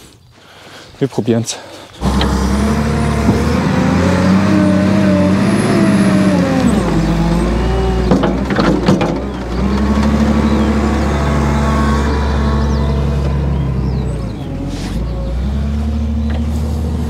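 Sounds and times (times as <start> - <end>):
diesel engine revving: 2.0 - 17.0
sharp knocks: 7.9 - 10.2.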